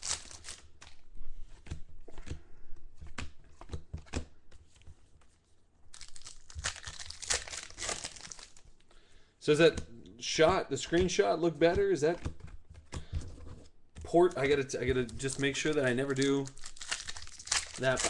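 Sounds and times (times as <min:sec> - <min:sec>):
foil wrapper crinkling and tearing: 0:00.0 - 0:01.0, 0:05.9 - 0:08.7, 0:14.4 - 0:18.0.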